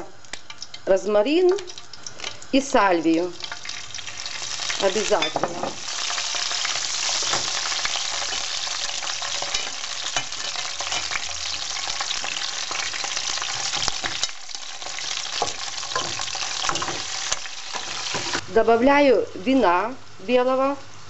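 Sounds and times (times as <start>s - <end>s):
oil sizzling in frying pan: 0.0s - 18.4s.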